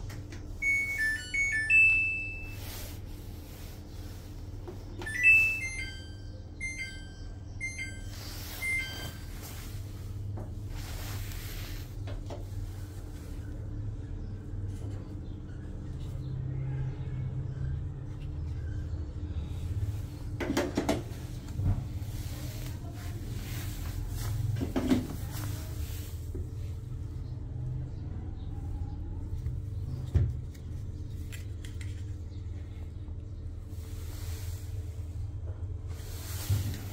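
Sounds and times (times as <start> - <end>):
washing machine beeping a tune: 0.4 - 3.1, 4.9 - 10.2.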